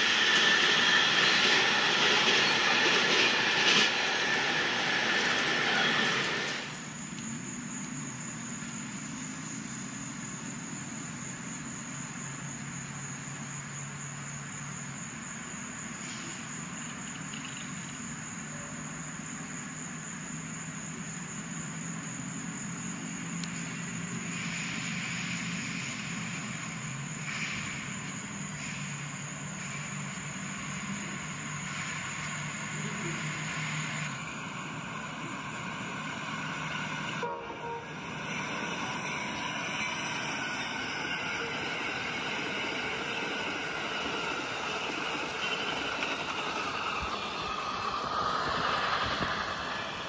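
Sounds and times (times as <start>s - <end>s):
high whine: 0.0s - 7.0s, 32.8s - 50.0s
passing train: 0.0s - 50.0s
low engine rumble: 30.8s - 50.0s.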